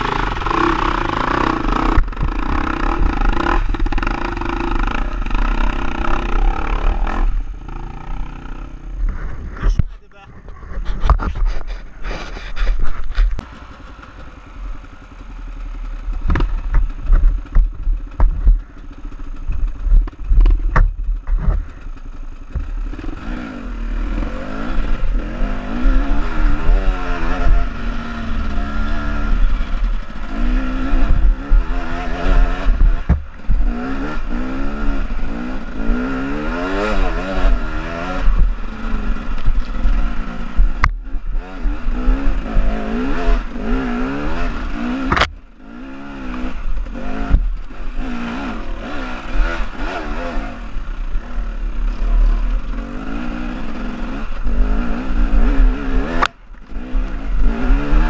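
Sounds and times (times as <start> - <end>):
motorcycle engine revving: 0.0 - 58.0
bike clattering over bumps: 16.0 - 22.8, 30.9 - 34.4.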